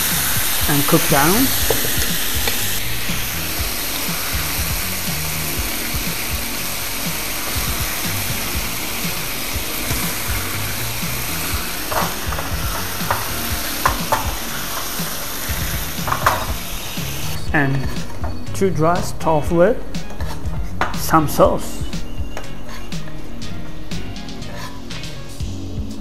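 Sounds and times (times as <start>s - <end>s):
sauce sizzling and bubbling in a pan: 0.0s - 17.4s.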